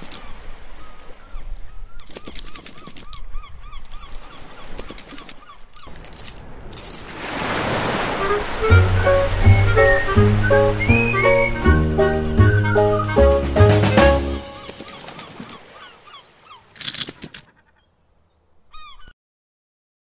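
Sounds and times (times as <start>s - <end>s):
wave rushing in: 7.1s - 14.2s
squeaky chirps: 8.2s - 13.4s
music: 8.2s - 14.6s.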